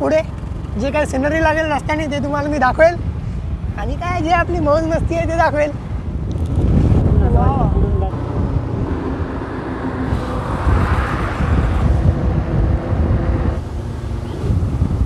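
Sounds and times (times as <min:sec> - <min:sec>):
motorcycle engine hum: 0:00.0 - 0:15.0
wind buffeting microphone: 0:00.0 - 0:15.0.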